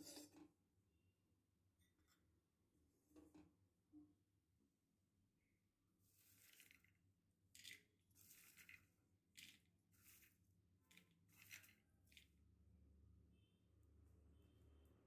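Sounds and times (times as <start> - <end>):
peanuts rattling in a steel bowl: 6.2 - 12.4.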